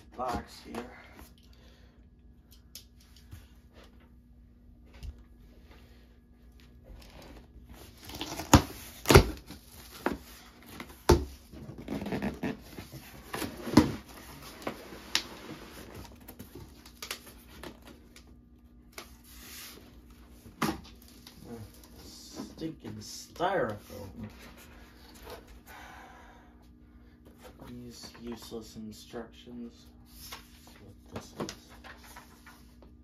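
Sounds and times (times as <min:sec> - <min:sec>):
cardboard rustling and scraping: 0:06.9 - 0:18.0.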